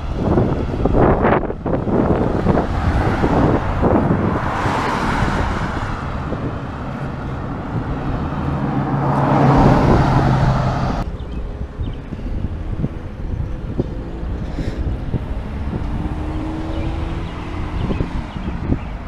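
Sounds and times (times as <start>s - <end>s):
cars passing: 0.0s - 19.0s
low engine hum: 0.0s - 19.0s.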